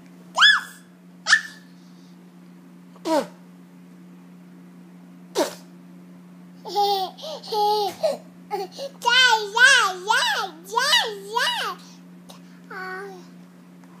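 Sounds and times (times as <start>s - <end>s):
steady low hum: 0.0s - 14.0s
young child babbling: 12.7s - 13.3s.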